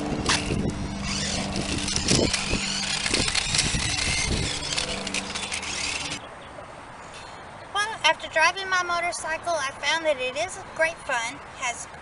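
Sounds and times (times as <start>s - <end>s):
wheels crackling on rough concrete: 0.0s - 6.3s
toy motorcycle motor whine: 0.2s - 6.2s.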